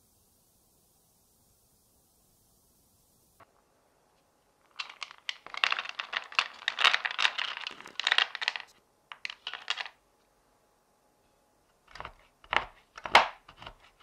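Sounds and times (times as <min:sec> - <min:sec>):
chocolate wafers clattering onto board: 0:04.7 - 0:10.0.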